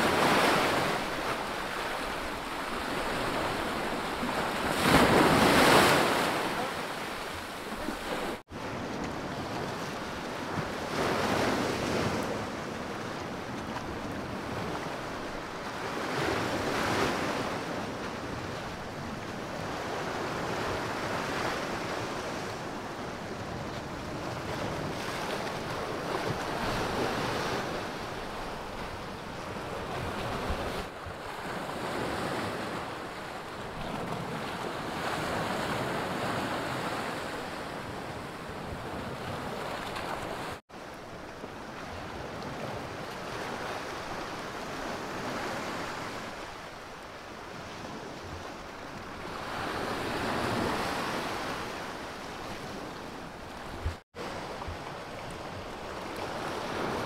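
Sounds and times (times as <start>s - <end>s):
surf breaking on rocky shore: 0.0s - 8.9s.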